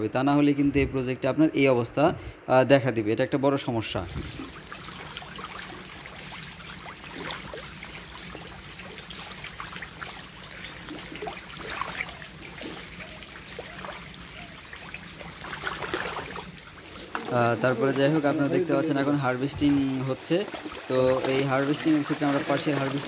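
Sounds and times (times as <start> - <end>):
small plinks and splashes: 4.1 - 23.0
water bubbling in fish tank: 4.2 - 17.0.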